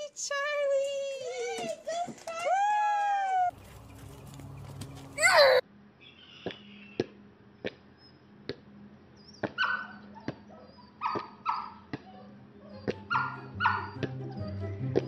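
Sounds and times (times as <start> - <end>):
dog barking high-pitched: 9.6 - 14.0.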